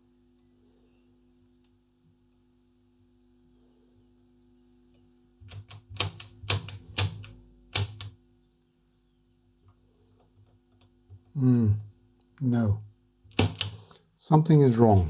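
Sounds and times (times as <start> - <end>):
faint steady hum: 0.0 - 15.0
pushbutton switches clicking: 5.4 - 8.2, 13.3 - 13.8.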